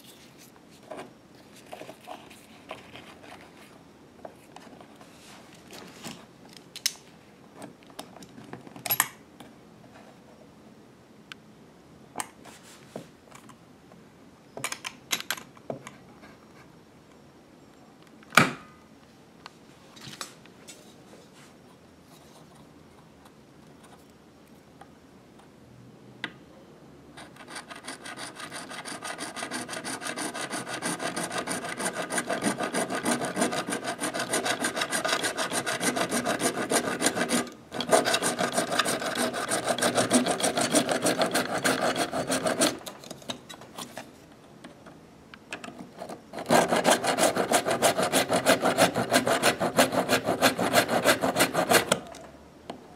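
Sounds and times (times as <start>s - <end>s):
hacksaw sawing plastic pipe: 27.2s - 42.9s, 46.3s - 52.1s.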